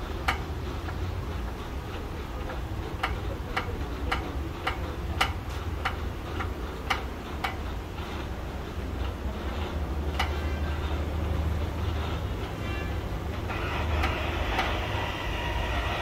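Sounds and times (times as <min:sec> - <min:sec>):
hydraulic pump clicking: 0:00.2 - 0:07.7, 0:10.1 - 0:10.4, 0:13.4 - 0:16.0.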